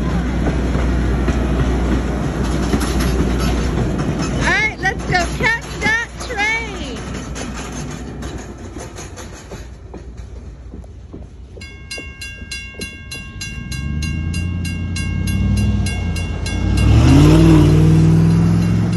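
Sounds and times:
train rumble: 0.0s - 18.9s
railroad crossing bell ringing: 2.9s - 7.9s, 11.4s - 18.9s.

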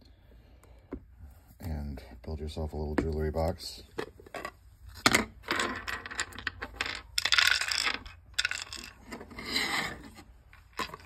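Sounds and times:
resin castings clicking and clinking: 5.1s - 9.3s.

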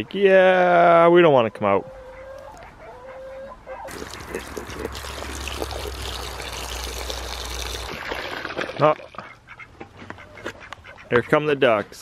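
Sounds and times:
faint poultry calls: 1.6s - 4.0s, 9.2s - 12.0s
water pouring into a pan: 3.9s - 9.2s.

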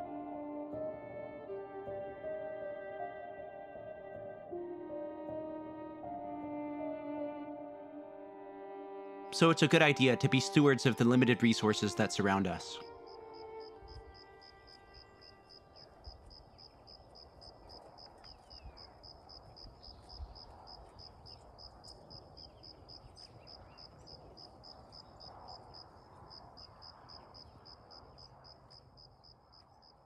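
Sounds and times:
cricket chirping: 12.8s - 30.0s.

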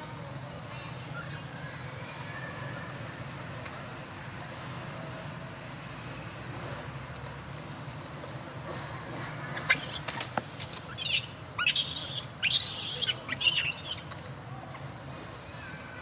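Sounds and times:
macaque infant squealing: 9.6s - 10.1s, 10.9s - 14.1s.

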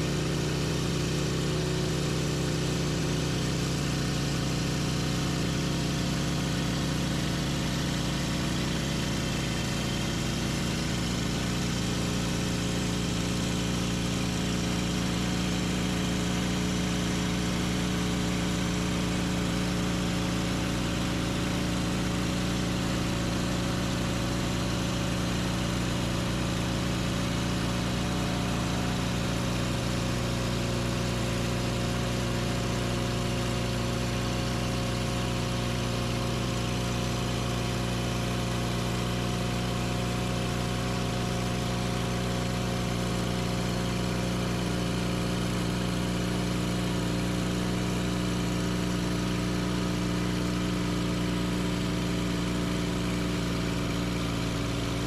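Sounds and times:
sawmill engine running: 14.7s - 33.4s.

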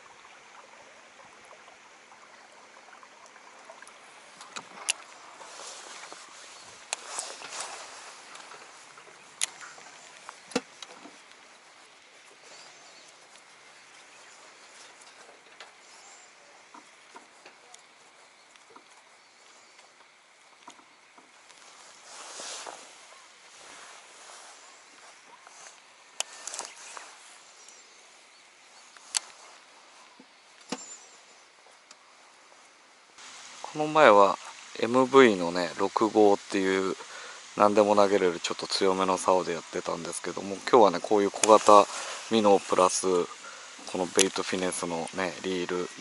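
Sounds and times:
faint outdoor background: 0.0s - 46.0s
faint high chirps: 21.6s - 32.8s.

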